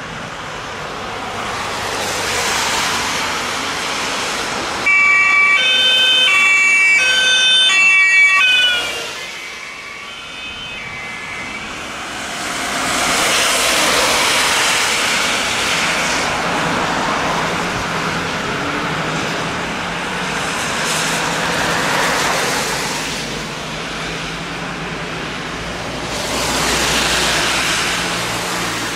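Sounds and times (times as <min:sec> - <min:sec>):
tyres hissing on wet road: 0:00.0 - 0:07.0, 0:07.7 - 0:28.9
two-tone emergency siren: 0:04.8 - 0:13.4.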